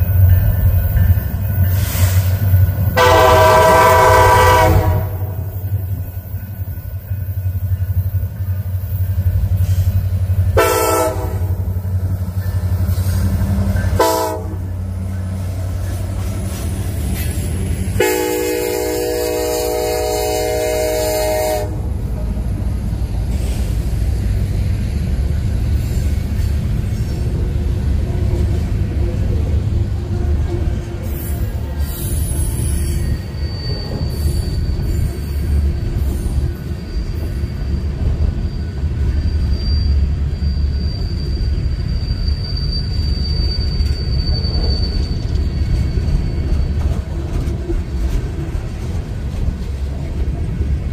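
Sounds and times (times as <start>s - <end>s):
locomotive air horn blasts: 3.0s - 5.6s, 10.5s - 11.8s, 13.9s - 14.8s, 18.0s - 21.8s.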